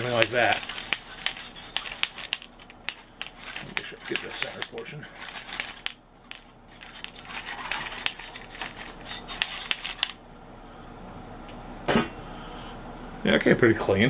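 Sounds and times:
wire brush scraping metal rack: 0.0s - 10.2s.

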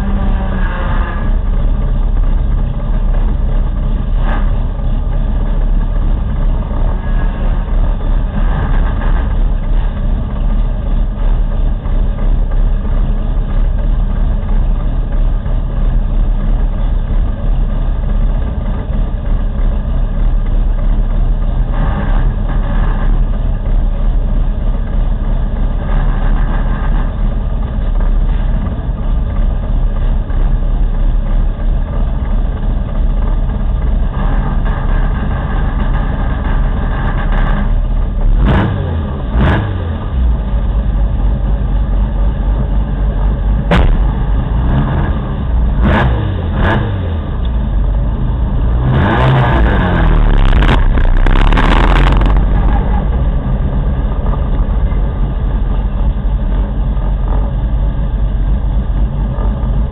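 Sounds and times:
race car engine idling: 0.0s - 59.9s.

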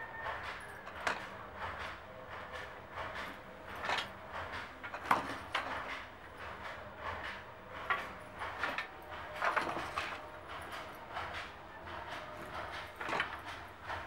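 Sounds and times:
wooden handloom knocking: 0.0s - 14.0s.

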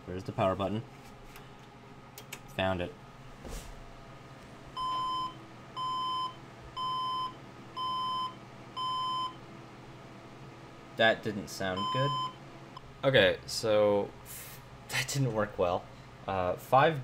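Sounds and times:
computer speaker beeps: 11.8s - 12.4s.

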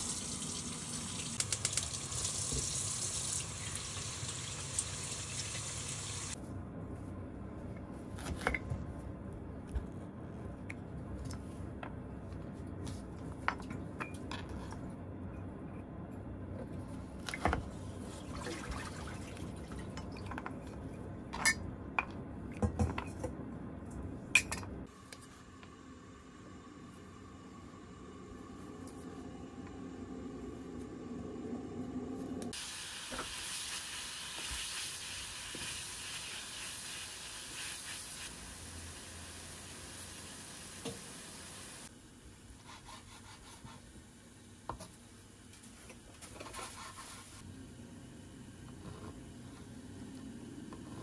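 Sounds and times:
tap water running: 0.0s - 6.4s, 18.0s - 20.4s, 38.1s - 41.9s.

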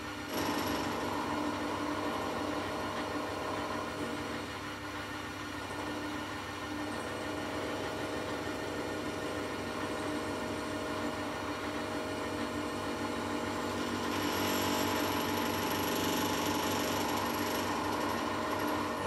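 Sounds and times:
metal lathe hum: 5.7s - 19.0s.

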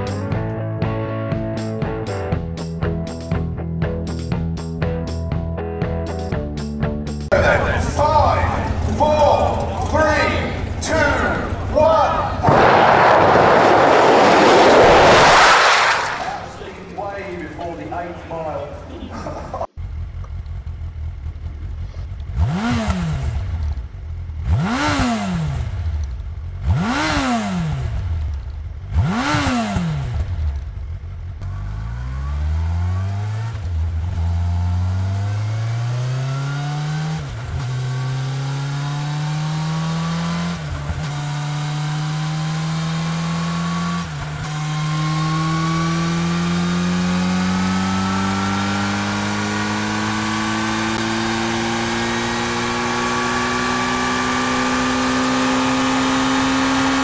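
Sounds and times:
motorcycle engine idling and revving: 1.3s - 12.5s, 19.3s - 57.0s
motorcycle accelerating through gears: 19.8s - 57.0s.

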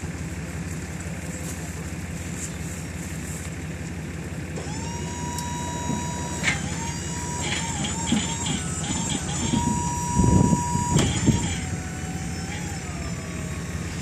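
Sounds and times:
engine idling: 0.0s - 14.0s
trailer mechanism whining: 4.2s - 14.0s.

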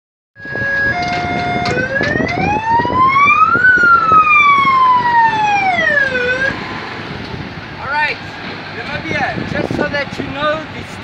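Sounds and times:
electronic vehicle siren: 0.4s - 6.8s.

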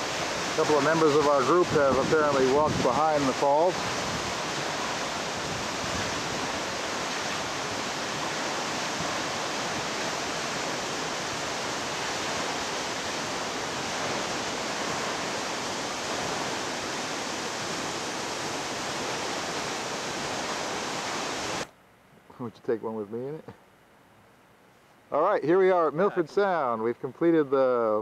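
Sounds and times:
waterfall rushing onto rocks: 0.0s - 21.7s.

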